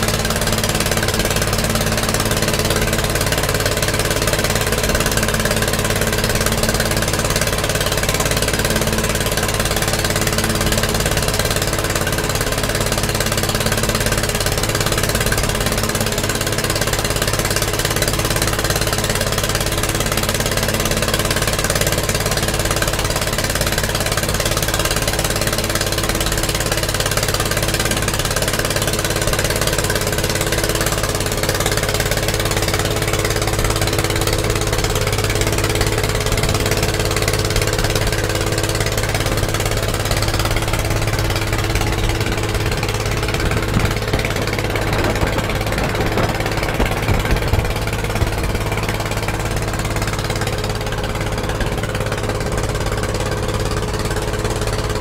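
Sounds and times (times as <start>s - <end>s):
motorboat engine drone: 0.0s - 55.0s
rushing water noise: 0.0s - 55.0s.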